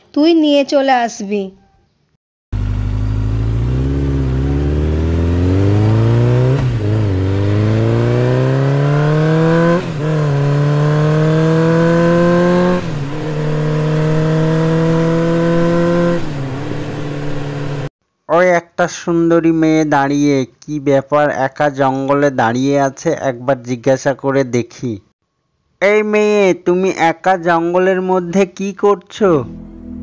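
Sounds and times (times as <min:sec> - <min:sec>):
motorcycle engine accelerating: 0:02.5 - 0:17.9.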